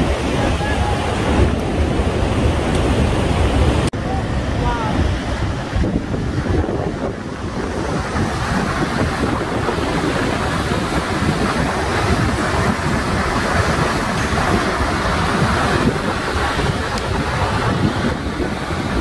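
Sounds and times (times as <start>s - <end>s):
waterfall rushing: 0.0s - 19.0s
wind buffeting microphone: 0.0s - 19.0s.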